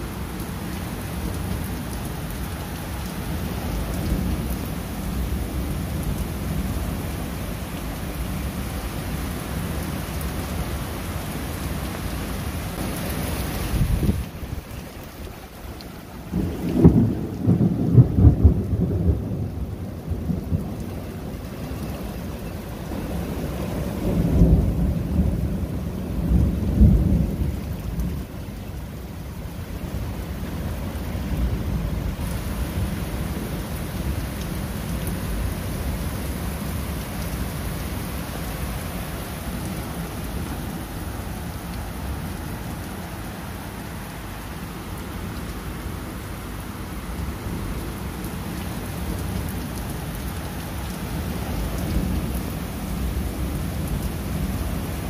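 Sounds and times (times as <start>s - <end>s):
steady rain falling: 0.0s - 55.0s
thunder rumble: 16.2s - 29.0s.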